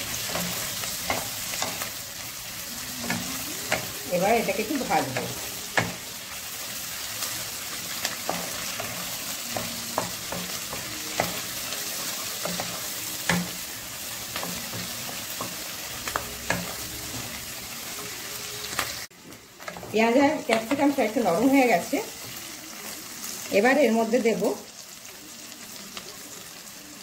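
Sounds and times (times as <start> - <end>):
vegetables sizzling in hot oil: 0.0 - 27.0.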